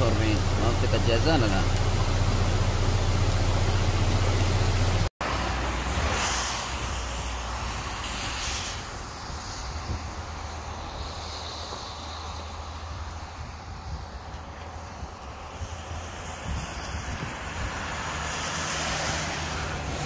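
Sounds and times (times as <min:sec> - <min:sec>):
flash flood rushing: 0:00.0 - 0:11.2
wind on microphone: 0:05.8 - 0:20.0.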